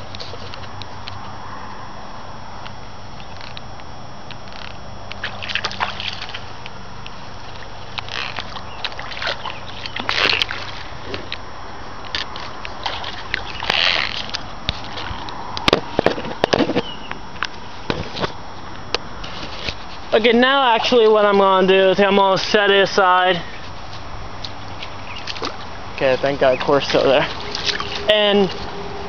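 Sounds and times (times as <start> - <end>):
footsteps splashing in muddy water: 5.2 - 6.7, 7.3 - 15.9, 23.6 - 28.9.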